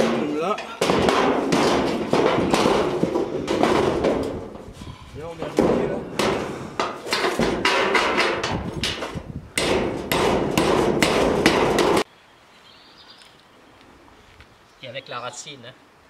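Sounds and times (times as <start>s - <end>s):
hammer on corrugated metal sheet: 0.0s - 4.5s, 5.4s - 12.1s.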